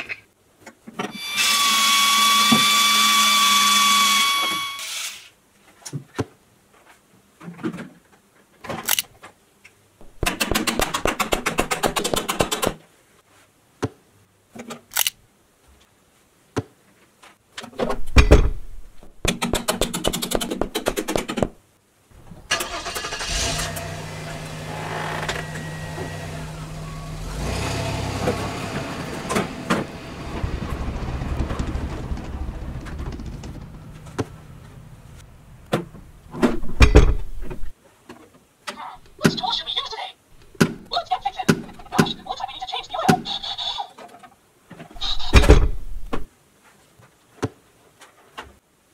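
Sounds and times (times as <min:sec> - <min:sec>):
engine cranking and running: 0:22.5 - 0:35.2.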